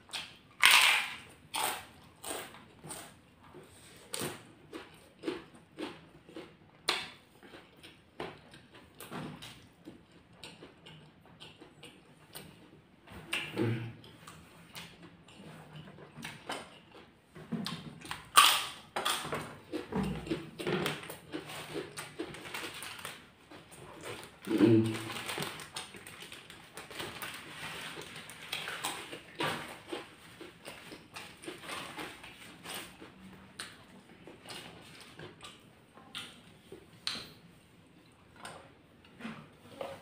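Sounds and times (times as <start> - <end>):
chewing and mouth smacking: 4.0 - 37.4
person low vocal sound: 24.5 - 25.1.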